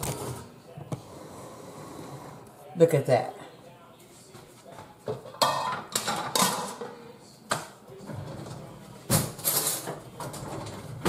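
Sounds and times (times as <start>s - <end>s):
dishes and utensils clinking: 5.0s - 11.0s.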